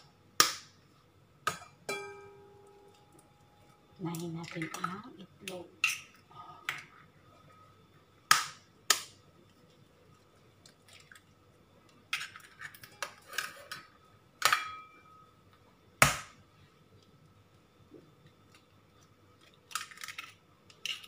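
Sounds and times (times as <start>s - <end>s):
eggs cracked against metal bowl: 4.1s - 6.9s, 8.3s - 9.2s.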